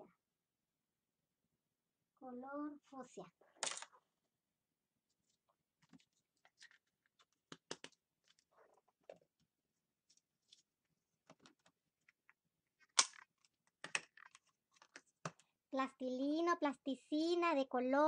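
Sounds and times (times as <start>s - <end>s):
plastic tubs clicking and knocking: 7.5s - 8.0s.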